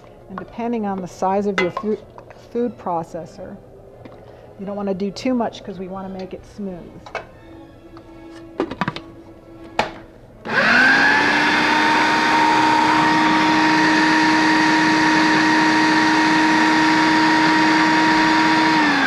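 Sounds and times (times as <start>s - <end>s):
food processor motor whining: 10.4s - 19.0s.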